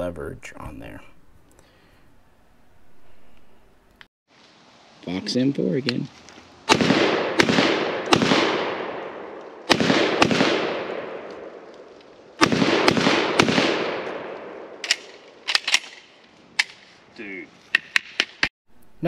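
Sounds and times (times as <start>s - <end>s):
shotgun firing with echo: 6.7s - 11.6s, 12.4s - 15.2s.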